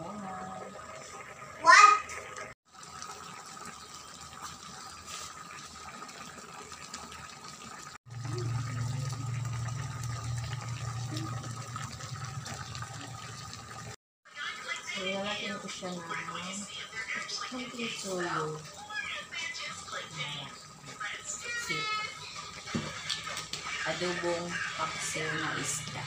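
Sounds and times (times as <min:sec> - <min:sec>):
broth simmering with bubbling hiss: 0:00.0 - 0:26.0
low rumble: 0:08.1 - 0:13.4.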